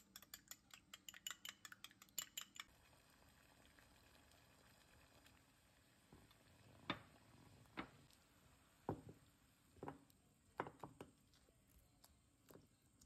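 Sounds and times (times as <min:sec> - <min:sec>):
utensils clicking on saucepan: 0:00.0 - 0:02.7.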